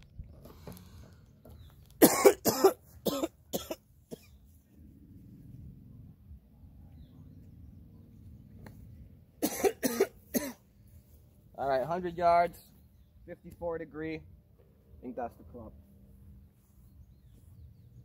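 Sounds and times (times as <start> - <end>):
person coughing: 2.0 - 4.3, 9.4 - 10.6.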